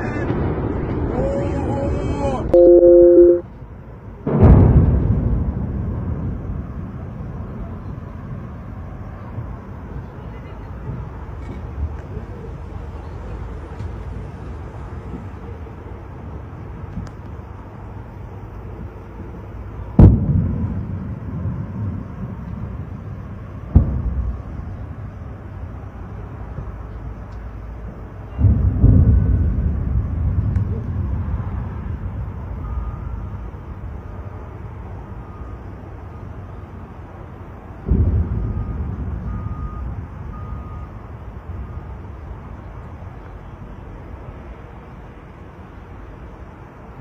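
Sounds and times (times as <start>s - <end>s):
high electronic beep: 2.5s - 3.4s
missile explosion boom: 4.3s - 6.9s, 20.0s - 22.0s, 28.4s - 31.3s, 37.8s - 39.5s.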